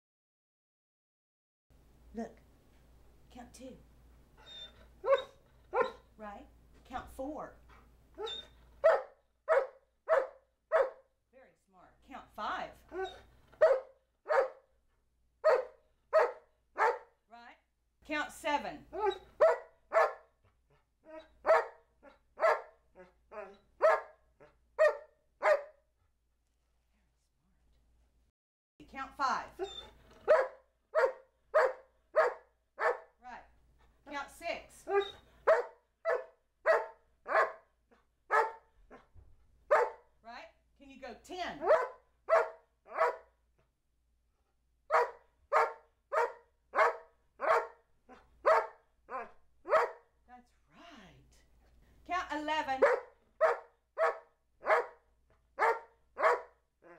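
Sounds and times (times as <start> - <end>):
dog barking: 5.0 - 6.0, 8.2 - 11.0, 13.0 - 14.6, 15.4 - 17.1, 19.0 - 20.3, 21.4 - 22.8, 23.8 - 24.2, 24.8 - 25.8, 29.6 - 33.1, 34.9 - 37.7, 38.3 - 39.1, 39.7 - 40.0, 41.6 - 43.4, 44.9 - 47.8, 48.4 - 50.1, 52.8 - 55.0, 55.6 - 56.6.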